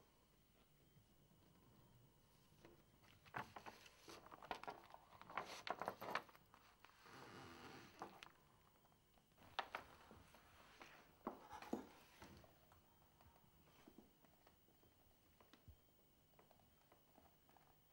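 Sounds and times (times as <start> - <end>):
magazine paper rustling: 3.0 - 7.0, 9.4 - 12.4.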